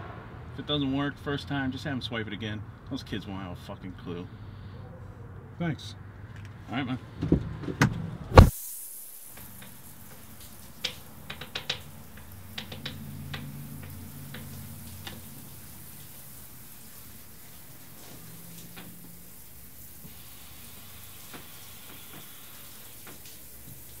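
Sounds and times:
steady hiss: 8.4 - 24.0.

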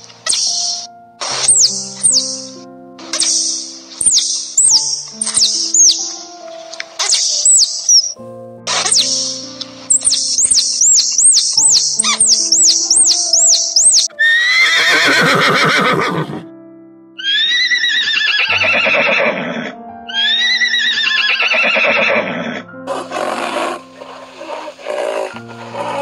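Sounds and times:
quick high chirps: 0.0 - 6.1, 6.7 - 14.1
soft background music: 0.0 - 26.0
horse whinnying: 12.0 - 16.4, 17.2 - 26.0.

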